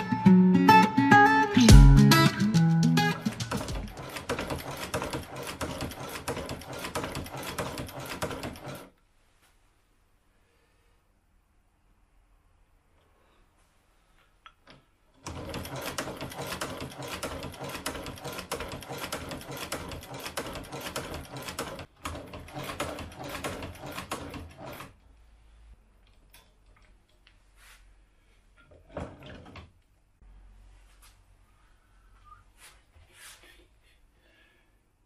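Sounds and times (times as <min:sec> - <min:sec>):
sewing machine clicking rapidly: 0:03.2 - 0:08.9, 0:15.2 - 0:25.0.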